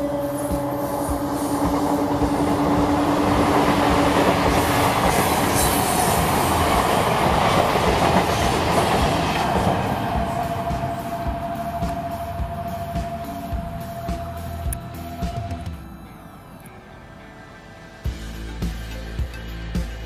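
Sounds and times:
train wheels clattering over rails: 0.6 - 14.4.

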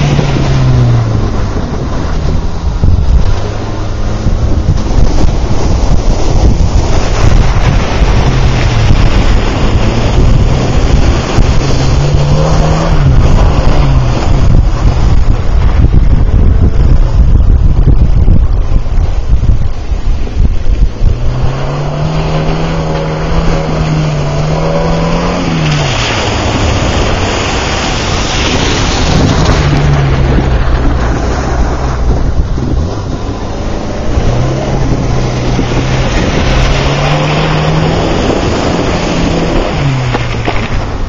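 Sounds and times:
car engine revving: 0.0 - 41.0
wind rumble on microphone: 0.0 - 41.0
tyres hissing through water spray: 21.7 - 30.0.

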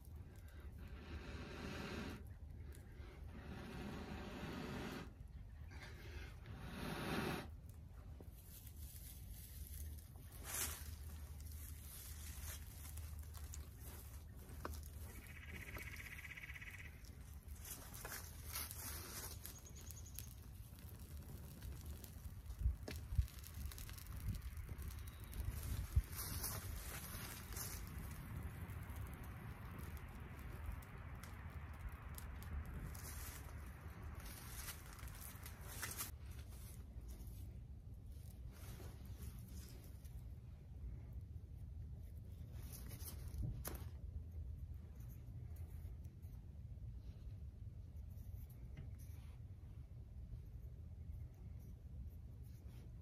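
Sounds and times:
dry grass burning and crackling: 0.0 - 53.0
dry grass swishing through air: 8.4 - 15.3, 22.6 - 28.2, 32.8 - 36.8
low wind rumble on microphone: 20.1 - 36.3.

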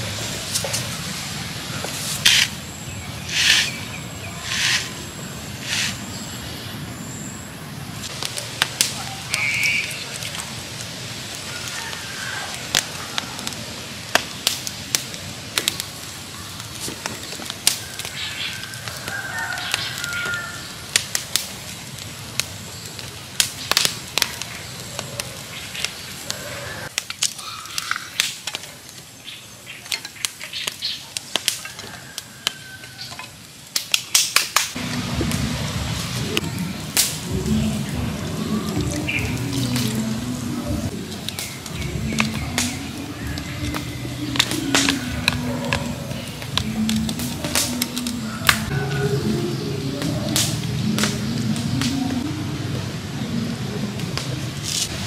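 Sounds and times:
wood fire crackling and popping: 0.0 - 55.0
firewood knocking: 41.1 - 48.6.

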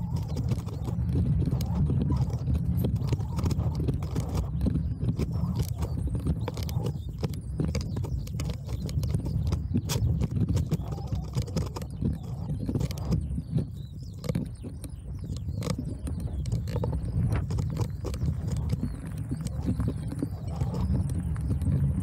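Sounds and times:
bicycle rumbling over dirt: 0.0 - 22.0
bike clicking and rattling: 0.0 - 22.0.

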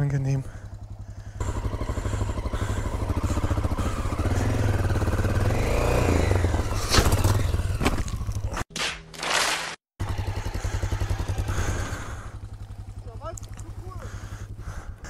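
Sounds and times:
motorcycle engine running: 0.0 - 8.6, 10.0 - 15.0
motorcycle tipping over with knocks: 6.7 - 8.6.

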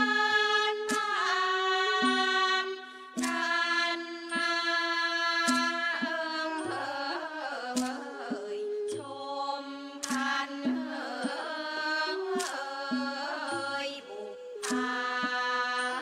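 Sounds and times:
bright percussion strikes: 0.0 - 16.0.

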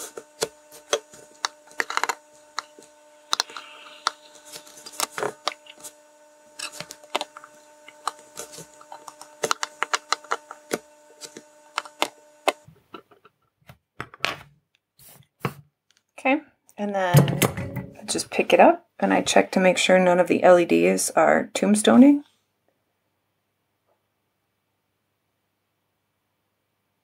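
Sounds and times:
steady low hum: 0.0 - 12.7.

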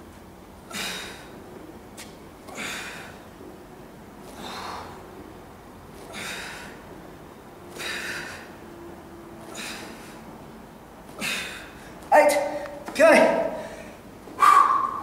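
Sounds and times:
man exhaling forcefully: 0.7 - 1.3, 2.5 - 3.2, 6.1 - 6.8, 7.7 - 8.5, 9.5 - 10.2, 11.2 - 11.8, 13.6 - 15.0.

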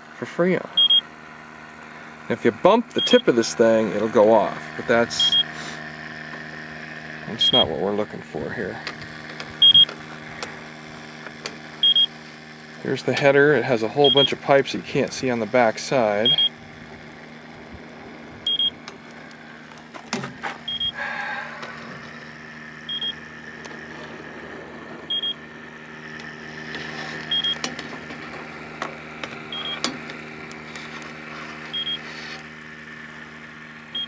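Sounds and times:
steady low hum: 0.0 - 34.0
leak detector short high beeps: 0.8 - 1.0, 3.0 - 3.3, 5.2 - 5.6, 7.4 - 7.7, 9.6 - 9.9, 11.8 - 12.1, 14.0 - 14.4, 16.2 - 16.5, 18.5 - 18.8, 20.7 - 21.0, 22.9 - 23.2, 25.1 - 25.4, 27.3 - 27.6, 29.5 - 29.8, 31.7 - 32.0.

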